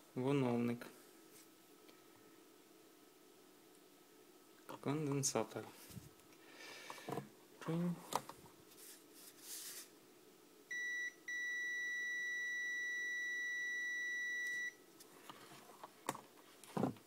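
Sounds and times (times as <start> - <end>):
multimeter continuity beeps: 10.7 - 14.8.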